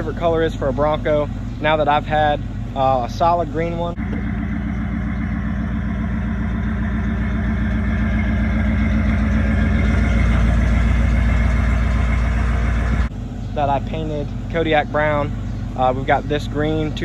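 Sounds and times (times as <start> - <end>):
car engine idling: 0.0 - 17.0.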